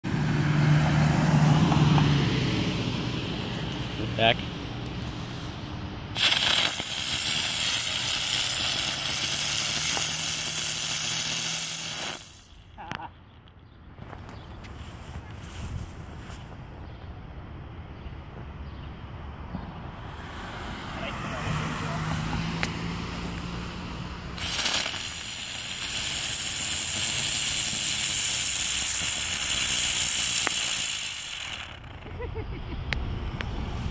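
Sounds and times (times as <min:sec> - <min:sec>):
firework spraying sparks hissing: 0:06.1 - 0:12.8, 0:24.4 - 0:32.3.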